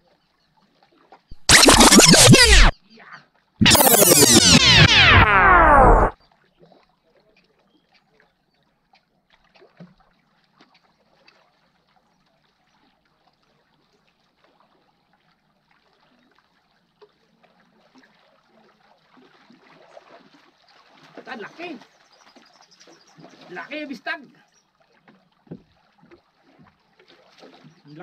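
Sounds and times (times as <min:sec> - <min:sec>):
loud electronic music: 0:01.4 - 0:02.7, 0:03.6 - 0:06.1.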